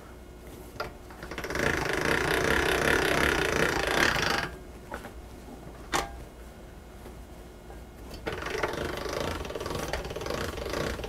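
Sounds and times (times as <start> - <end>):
pasta machine rollers clicking: 0.8 - 4.6, 8.1 - 11.0.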